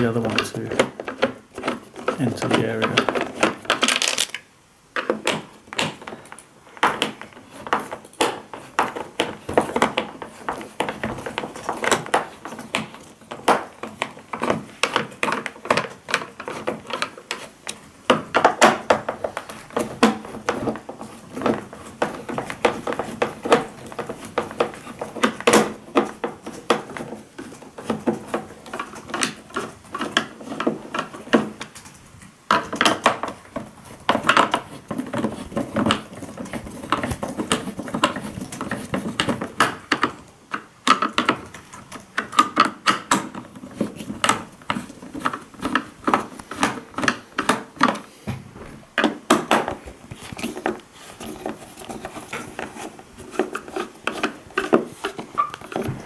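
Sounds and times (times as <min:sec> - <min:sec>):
screwdriver prying plastic casing: 0:32.5 - 0:48.1.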